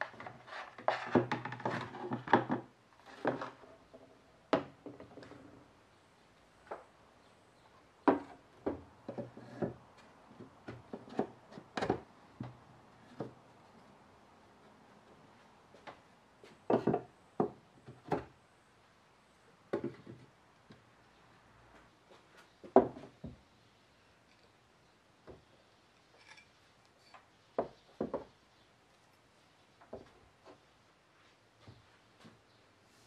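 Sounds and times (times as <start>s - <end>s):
wooden knocks and clunks: 0.0s - 5.4s, 8.0s - 13.4s, 15.8s - 18.4s, 19.7s - 20.8s, 22.1s - 23.4s, 25.2s - 25.5s, 27.6s - 28.3s.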